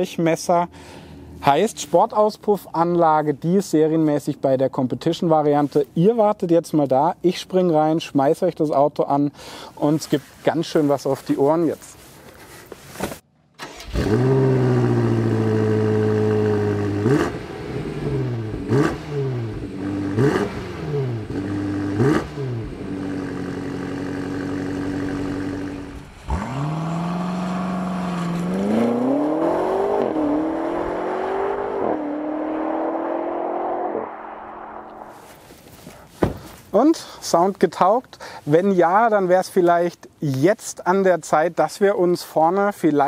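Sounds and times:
car accelerating hard: 13.6s - 35.1s
car engine revving: 13.6s - 35.2s
exhaust cracks: 13.6s - 36.7s.

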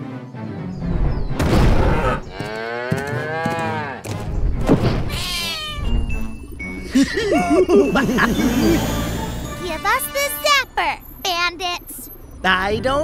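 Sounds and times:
cartoon animal calls: 5.1s - 6.0s.

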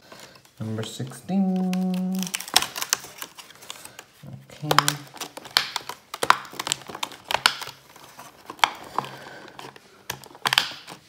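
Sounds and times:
cardboard crackling and tearing: 0.2s - 11.0s.

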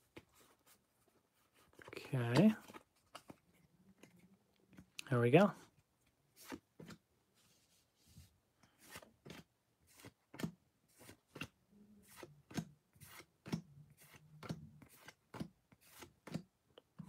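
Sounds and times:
cards being flipped: 1.6s - 4.9s, 6.3s - 7.0s, 8.7s - 11.5s, 12.1s - 16.4s.

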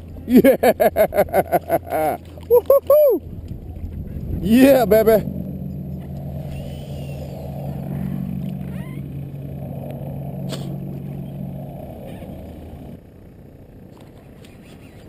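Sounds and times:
water and wind noise: 0.0s - 13.0s
low engine drone: 0.0s - 15.0s.

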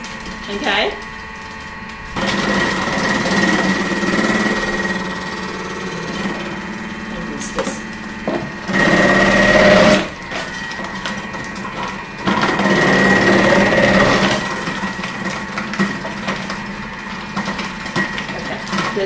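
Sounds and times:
food processor motor grating: 0.0s - 19.0s.

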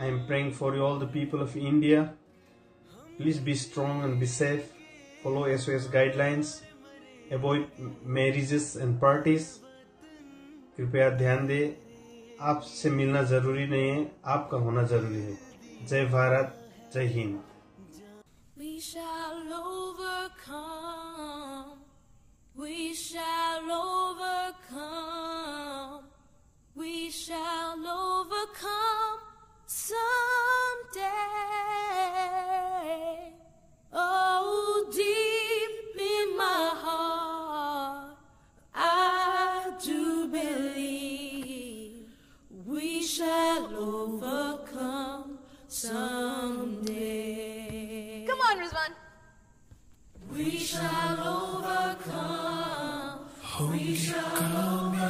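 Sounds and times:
woman singing unaccompanied: 0.0s - 1.4s, 9.6s - 10.8s, 17.8s - 21.9s, 22.6s - 26.1s, 26.8s - 49.0s, 50.2s - 55.0s
singer breathing: 2.3s - 2.9s, 42.0s - 42.6s.

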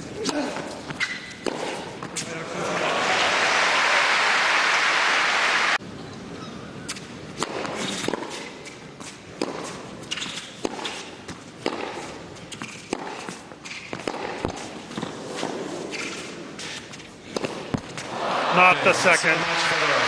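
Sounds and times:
ball bouncing: 0.2s - 2.2s, 9.0s - 15.2s, 17.3s - 18.1s
tennis racket striking ball: 0.2s - 2.3s, 6.9s - 18.1s.

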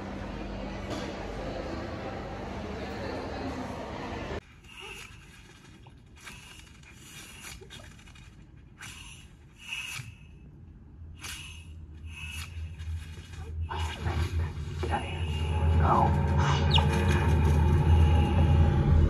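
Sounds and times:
soft scratching noises: 4.4s - 10.3s, 11.2s - 18.5s
low rumble: 10.5s - 19.0s.

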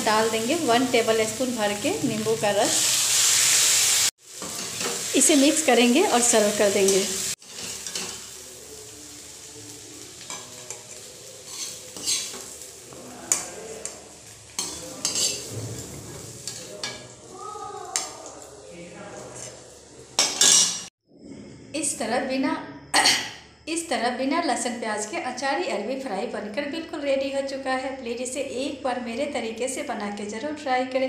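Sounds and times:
hot oil sizzling: 0.0s - 20.9s
metal spatula scraping a pan: 2.7s - 5.2s, 6.9s - 8.4s, 10.2s - 17.3s, 19.2s - 20.9s.

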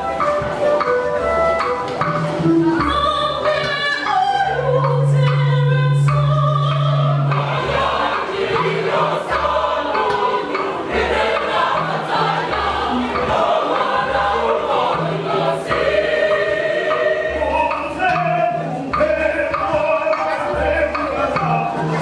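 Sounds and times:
mixed choir singing: 2.8s - 22.0s
low repeating beat: 4.5s - 22.0s.

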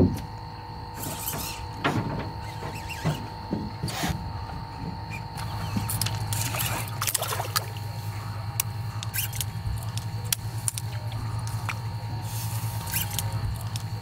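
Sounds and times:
small boat motor humming: 0.0s - 14.0s
fish splashing in water: 5.4s - 8.3s.

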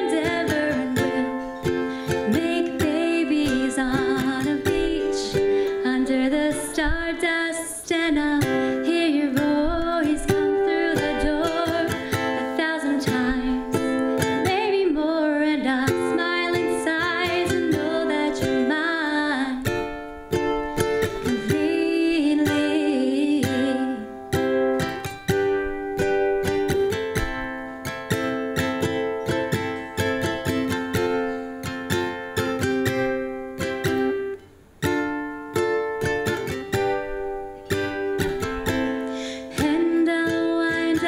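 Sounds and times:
woman singing: 0.0s - 24.9s, 36.0s - 41.0s
ukulele strumming: 0.0s - 41.0s.

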